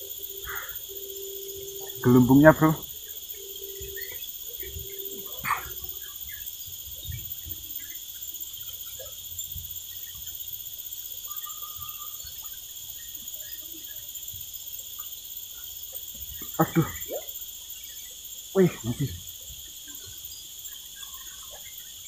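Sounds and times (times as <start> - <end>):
whistled note: 0.0 - 6.0
high-pitched insect chorus: 0.0 - 22.0.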